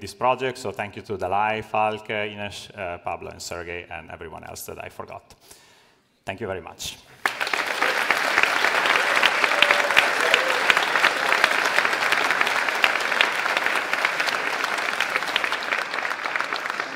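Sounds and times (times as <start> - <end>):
crowd clapping: 7.2 - 16.9.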